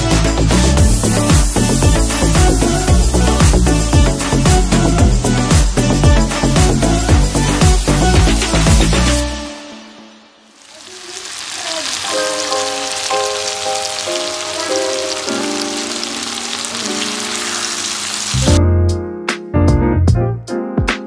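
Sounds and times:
vegetables sizzling in a pan: 6.7 - 9.2, 10.5 - 18.6.

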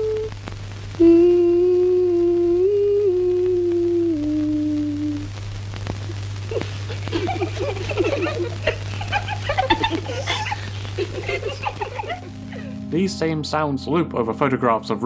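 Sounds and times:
film soundtrack hum and hiss: 0.0 - 15.0
children giggling and laughing: 6.5 - 12.8.

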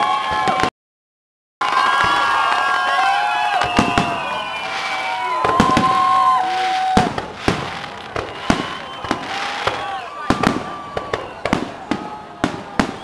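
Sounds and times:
high whistling fireworks: 0.0 - 0.7, 1.6 - 13.0
firework shells bursting: 3.6 - 11.8.

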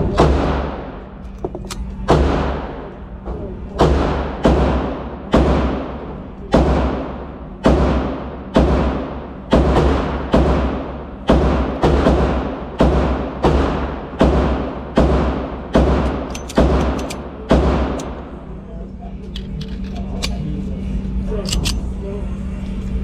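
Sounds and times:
pistol shots echoing indoors: 0.1 - 3.0, 3.7 - 18.3.

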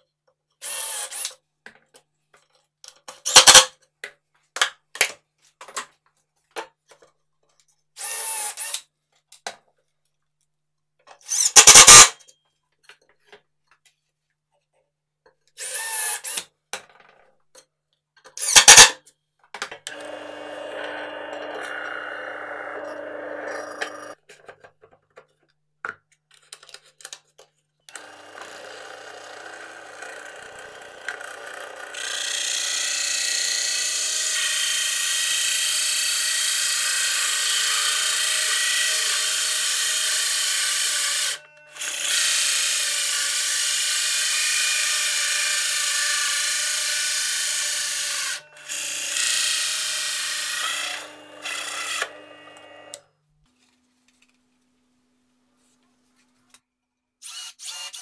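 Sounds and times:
drill press motor humming: 19.9 - 24.2, 27.9 - 34.2, 44.7 - 53.0
hole saw rasping through plywood: 19.9 - 24.2, 44.1 - 53.0.

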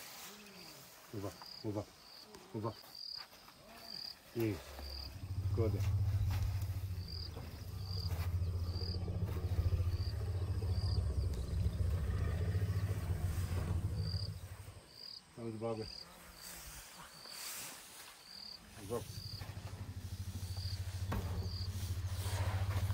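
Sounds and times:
elephant rumble: 4.4 - 14.9, 18.6 - 22.9.

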